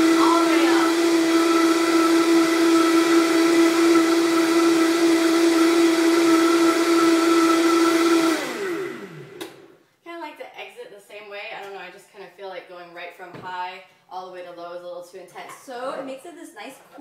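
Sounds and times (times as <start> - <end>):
blender motor running: 0.0 - 9.8.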